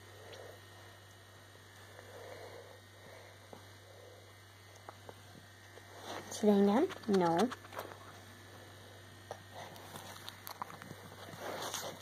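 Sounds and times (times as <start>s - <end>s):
soft rustles: 5.8s - 8.2s, 9.5s - 12.0s.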